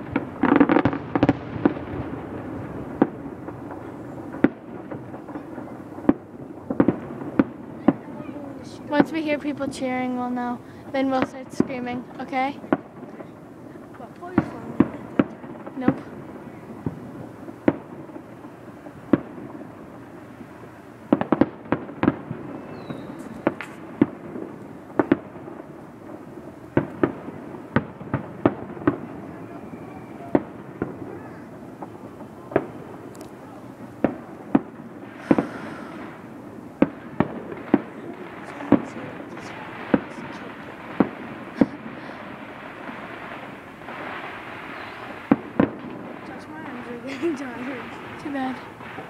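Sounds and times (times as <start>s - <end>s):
distant fireworks bangs: 0.0s - 49.0s.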